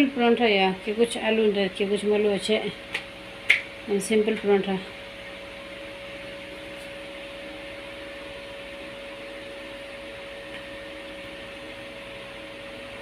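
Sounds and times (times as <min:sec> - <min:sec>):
electric fan humming: 0:00.0 - 0:13.0.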